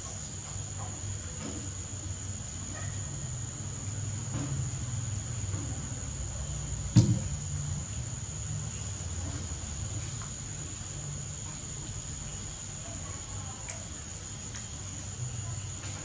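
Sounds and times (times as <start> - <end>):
sharp knock: 6.9 - 7.3.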